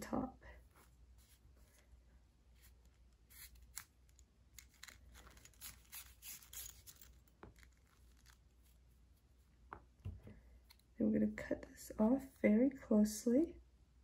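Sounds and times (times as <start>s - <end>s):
yarn rustling through yarn: 0.5s - 3.5s, 5.0s - 10.2s
metal needle scraping: 4.6s - 8.4s.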